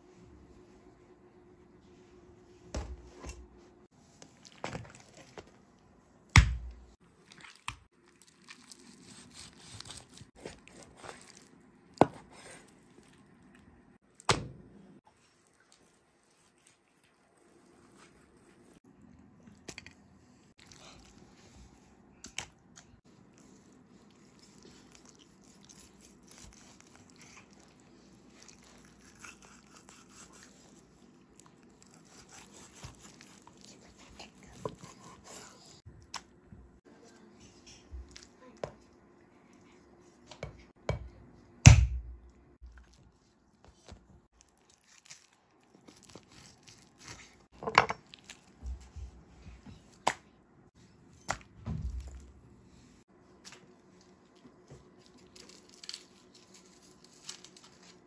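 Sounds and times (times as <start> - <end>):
knife slicing raw meat: 31.8 - 33.5.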